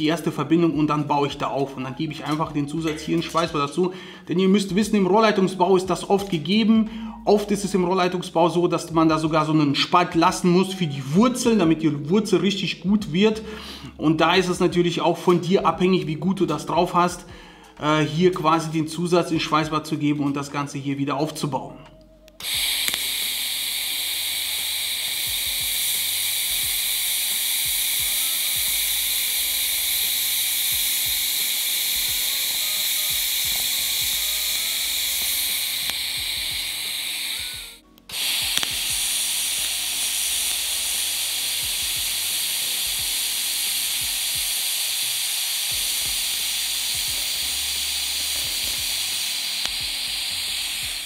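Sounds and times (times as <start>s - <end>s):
welding arc hissing and buzzing: 22.2s - 51.0s.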